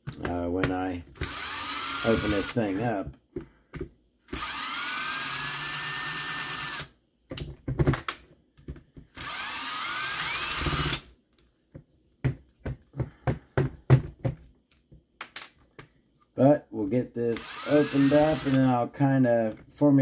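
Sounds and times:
power drill whining: 1.2s - 2.8s, 4.3s - 6.9s, 9.2s - 11.0s, 17.4s - 18.7s.

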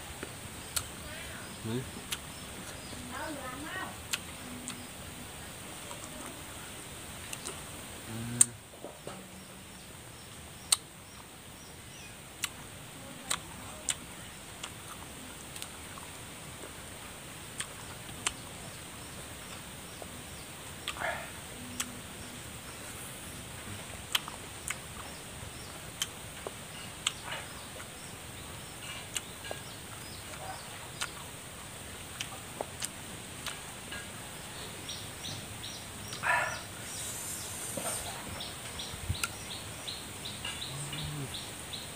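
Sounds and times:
mouth clicks: 0.7s - 0.9s, 1.7s - 3.0s, 4.0s - 5.0s, 7.2s - 8.6s, 10.6s - 10.9s, 13.2s - 14.0s, 17.5s - 18.4s, 19.4s - 23.0s, 23.6s - 28.0s, 28.7s - 31.2s, 32.1s - 34.1s, 36.0s - 39.6s, 40.2s - 41.6s
crunching lime: 23.6s - 28.0s, 28.8s - 31.2s.

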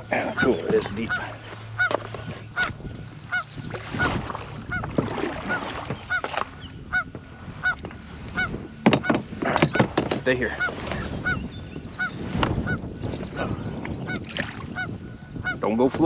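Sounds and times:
geese honking: 0.0s - 15.7s.

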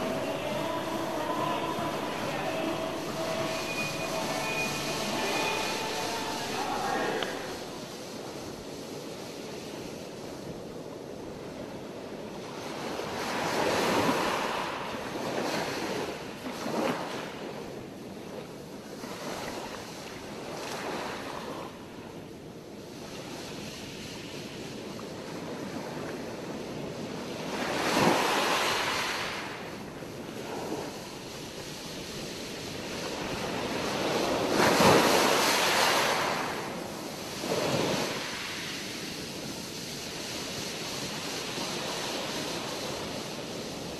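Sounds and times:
surf rushing: 0.0s - 8.7s, 32.4s - 43.9s.

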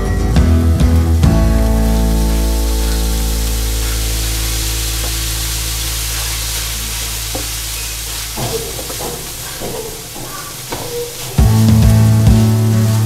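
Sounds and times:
background music: 0.0s - 5.0s, 11.4s - 13.0s
chicken sizzling in a frying pan: 0.0s - 13.0s.

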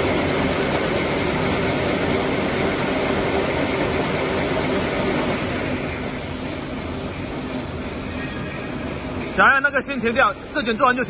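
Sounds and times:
packaging machine running: 0.0s - 6.2s.

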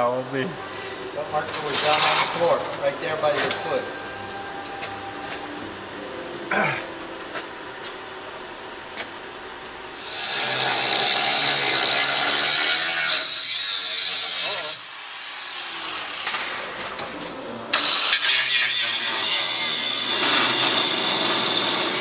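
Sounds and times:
angle grinder cutting steel: 1.4s - 5.2s, 9.9s - 16.8s, 17.7s - 22.0s.

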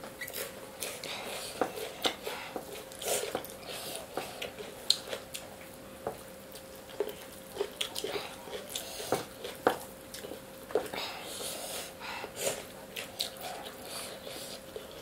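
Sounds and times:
faint hum: 0.0s - 15.0s
chewing and lip smacks: 1.8s - 5.7s, 6.5s - 11.0s, 12.5s - 15.0s.

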